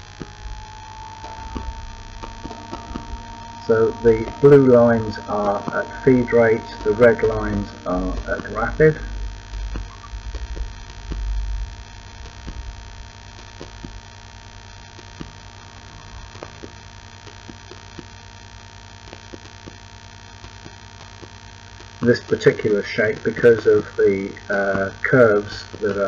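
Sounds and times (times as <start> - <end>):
low rumble: 0.0 - 17.3
electrical mains hum: 0.0 - 26.0.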